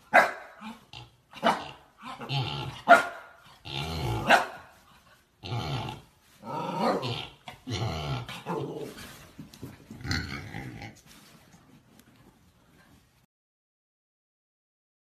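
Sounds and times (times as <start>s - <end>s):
puppy growling: 0.6s - 4.4s, 5.4s - 11.2s.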